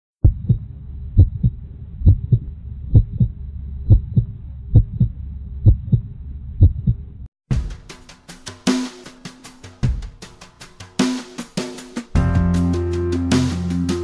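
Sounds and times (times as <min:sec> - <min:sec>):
low hum: 0:00.2 - 0:07.3
heartbeat thumps: 0:00.2 - 0:07.6.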